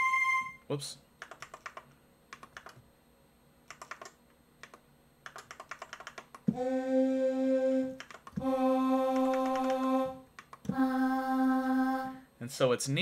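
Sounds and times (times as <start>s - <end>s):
synthesized vocal note: 6.5s - 12.3s.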